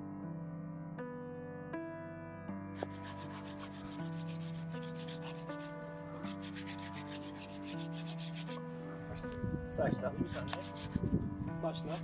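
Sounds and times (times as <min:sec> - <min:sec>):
soft music: 0:00.0 - 0:12.0
sandpaper rubbing on wood: 0:02.8 - 0:08.6, 0:10.2 - 0:12.0.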